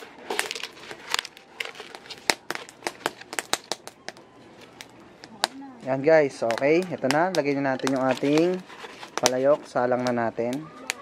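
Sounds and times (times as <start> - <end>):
leaf crinkling: 0.0 - 11.0
wood fire crackling: 0.0 - 11.0.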